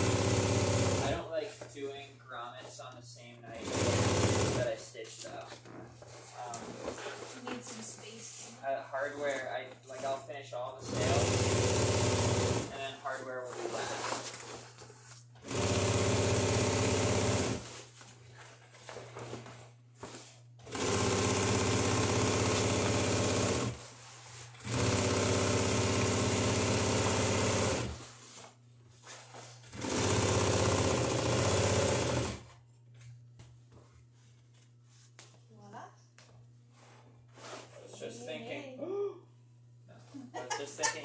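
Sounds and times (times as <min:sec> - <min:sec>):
sewing machine stitching: 0:00.0 - 0:01.2, 0:03.6 - 0:04.7, 0:10.8 - 0:12.8, 0:15.4 - 0:17.7, 0:20.6 - 0:23.8, 0:24.6 - 0:28.0, 0:29.7 - 0:32.5.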